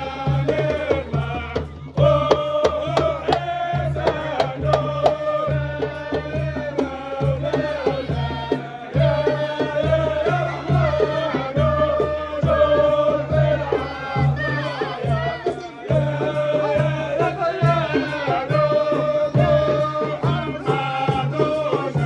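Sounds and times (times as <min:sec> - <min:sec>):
hand drums beating: 0:00.0 - 0:22.0
person singing a chant: 0:00.0 - 0:22.0.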